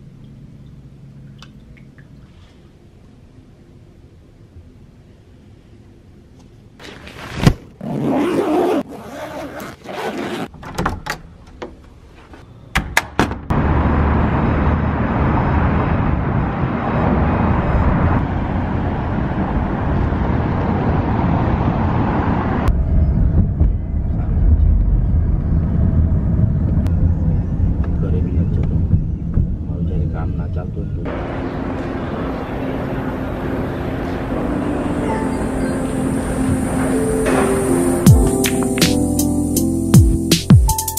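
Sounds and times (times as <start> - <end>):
rustling bursts: 6.8 - 10.5
rumble inside a moving car: 13.5 - 34.9
city traffic noise: 13.5 - 40.0.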